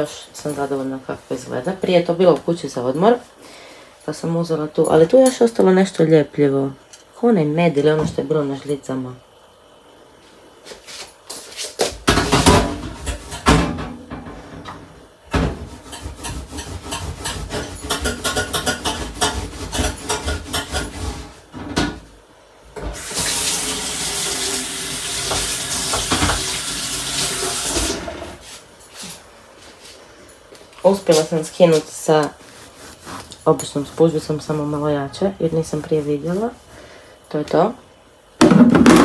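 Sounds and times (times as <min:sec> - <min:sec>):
tap water running: 0:22.8 - 0:28.4.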